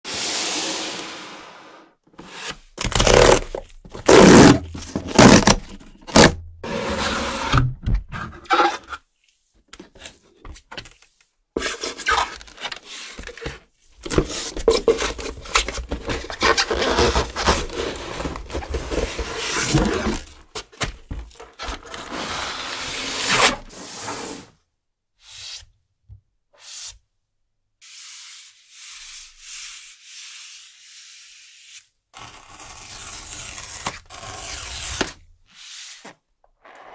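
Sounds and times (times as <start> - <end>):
cardboard scraping: 0.1 - 9.0, 11.6 - 24.5
cardboard sliding and rubbing: 0.1 - 9.4, 11.6 - 24.6, 33.3 - 36.9.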